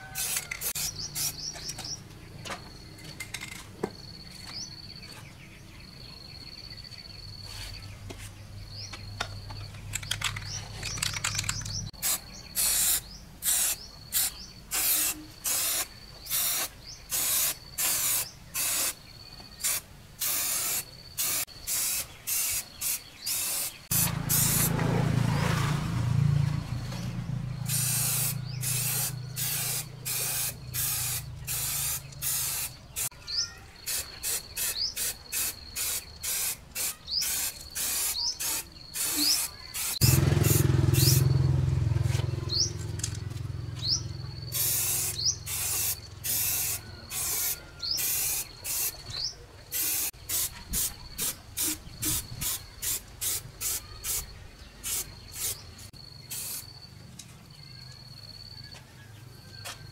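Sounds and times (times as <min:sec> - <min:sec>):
aerosol spray can hissing: 0:00.2 - 0:01.5, 0:12.0 - 0:19.0, 0:19.6 - 0:24.7, 0:27.7 - 0:33.1, 0:33.9 - 0:41.2, 0:44.5 - 0:49.0, 0:49.8 - 0:54.2, 0:56.3 - 0:56.7.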